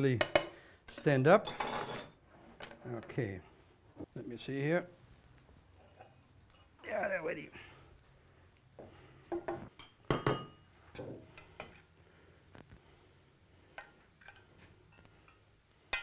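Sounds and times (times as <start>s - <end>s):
spoon clinking against pan: 9.8s - 10.7s.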